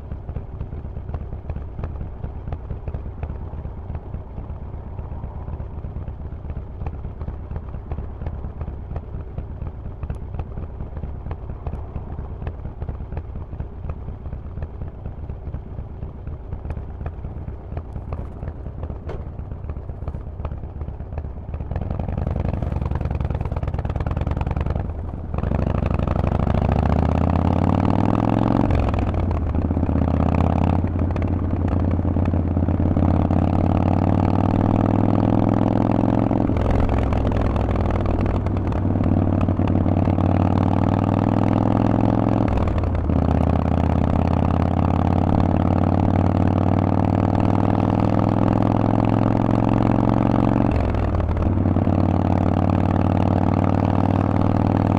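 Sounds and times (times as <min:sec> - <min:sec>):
motorcycle engine revving: 0:11.0 - 0:54.9.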